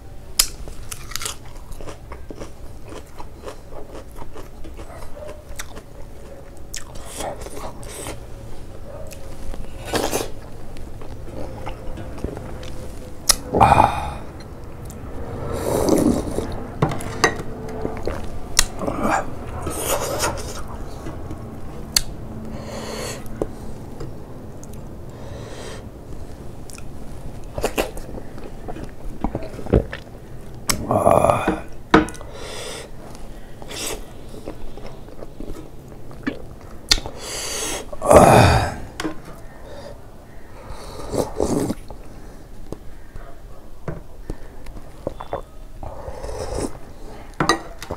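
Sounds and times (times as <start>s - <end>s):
man chewing and smacking: 0.4s - 15.0s, 15.8s - 22.6s, 26.1s - 30.9s, 33.0s - 37.2s, 44.2s - 47.9s
man drinking soup: 9.1s - 20.7s, 30.7s - 33.0s, 33.6s - 39.8s, 40.6s - 42.1s, 45.0s - 47.9s
breathy mouth sounds: 9.2s - 16.6s, 18.0s - 20.8s, 36.2s - 43.2s, 44.2s - 47.9s.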